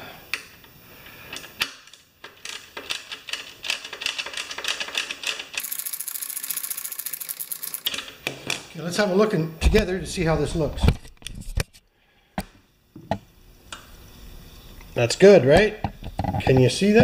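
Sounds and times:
socket ratchet clicking: 4.7 - 8.0.

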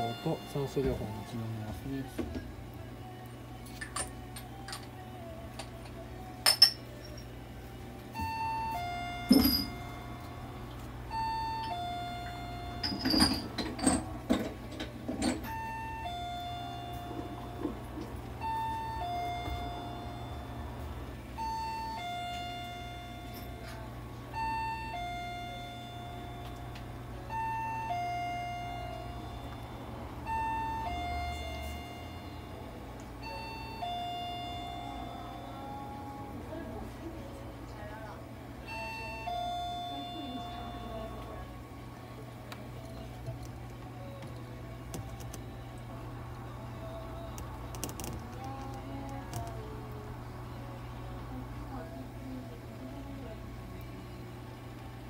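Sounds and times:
electronic two-note chime: 0.0 - 1.6, 8.2 - 10.4.

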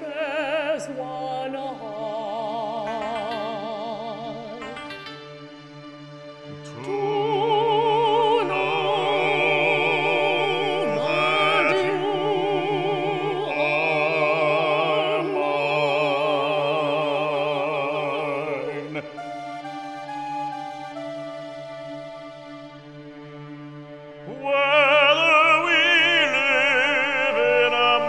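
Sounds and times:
operatic singing: 0.0 - 28.0.

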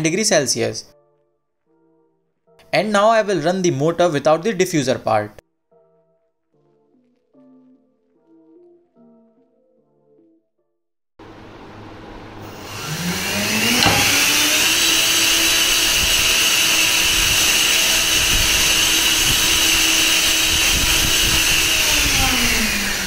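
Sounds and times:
electric fan whining: 11.2 - 23.0.

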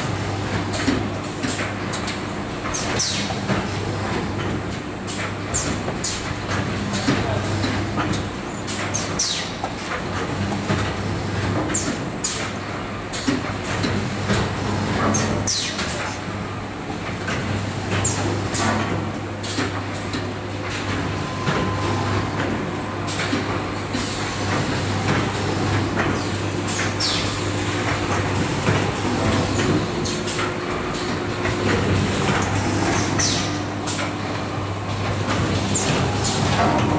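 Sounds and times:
machine humming: 20.3 - 36.9.

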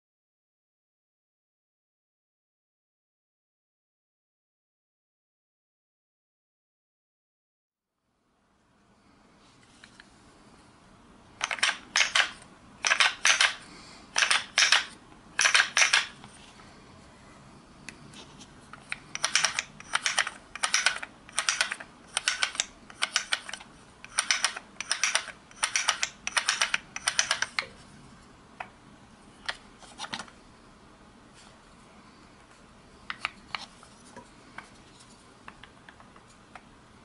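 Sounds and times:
toy gun mechanism clicking and rattling: 11.4 - 13.6, 14.2 - 16.2, 18.8 - 27.6.

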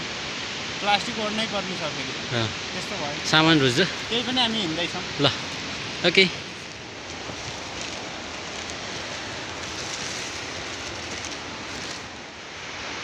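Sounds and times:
rain hiss: 0.0 - 13.0
raindrops ticking on plastic: 3.8 - 12.3.

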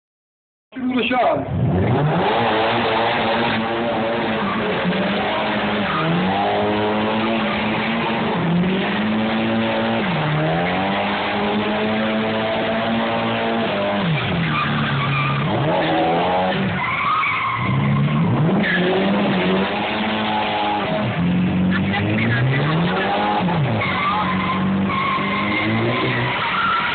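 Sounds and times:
tyres screeching on asphalt: 1.4 - 26.9
car engine revving: 1.5 - 26.9.

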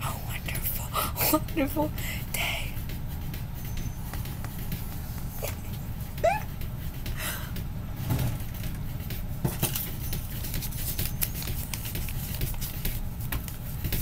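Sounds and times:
steady low hum: 0.0 - 14.0
paper banknotes rustling: 8.4 - 14.0.

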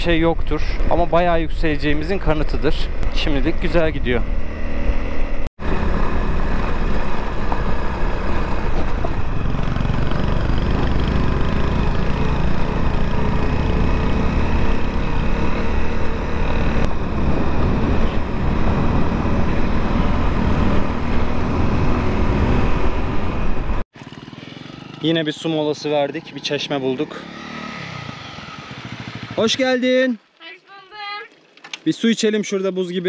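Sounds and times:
motorcycle engine running: 0.0 - 27.0, 27.6 - 29.8
wind noise on microphone: 16.9 - 23.8.

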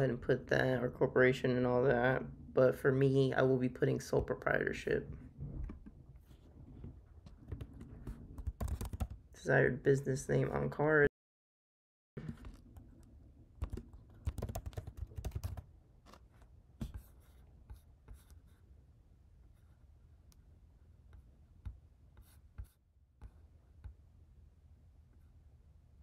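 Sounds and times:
computer keyboard typing: 8.4 - 9.2, 13.6 - 15.7.

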